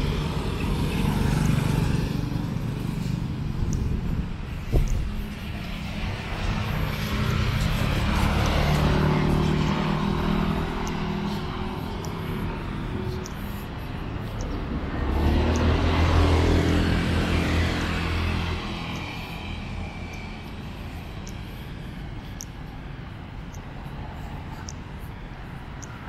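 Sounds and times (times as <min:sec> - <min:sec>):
engine speeding up: 0:00.0 - 0:26.0
vehicles passing: 0:00.0 - 0:26.0.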